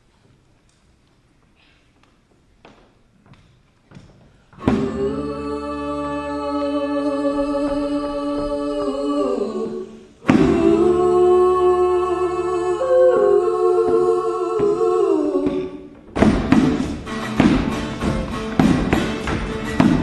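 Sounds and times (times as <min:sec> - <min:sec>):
vocal group humming chords: 0:04.6 - 0:20.0
rhythmic tapping: 0:15.5 - 0:20.0.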